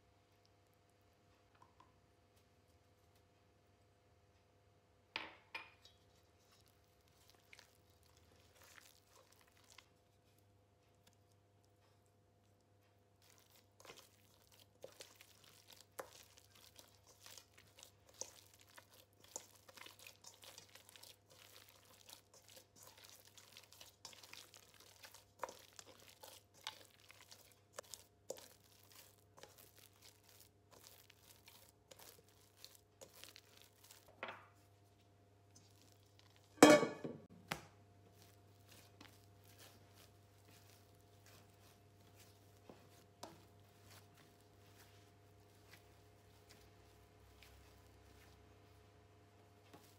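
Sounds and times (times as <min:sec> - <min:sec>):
dough stirred in a bowl: 0:05.7 - 0:49.9.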